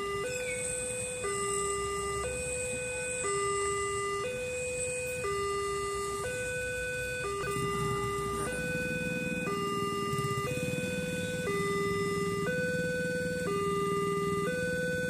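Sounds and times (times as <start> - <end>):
level crossing two-tone alarm: 0.0 - 15.0.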